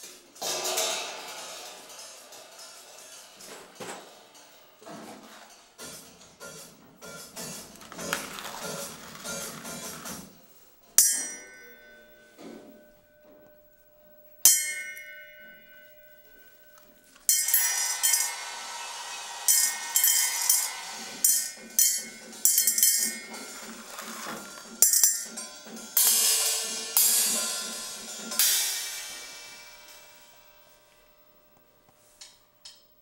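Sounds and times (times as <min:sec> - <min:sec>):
cymbal struck and ringing: 0:00.4 - 0:03.6, 0:11.0 - 0:13.2, 0:14.1 - 0:31.4
cymbals jangling and rattling: 0:16.4 - 0:18.5, 0:19.5 - 0:30.9.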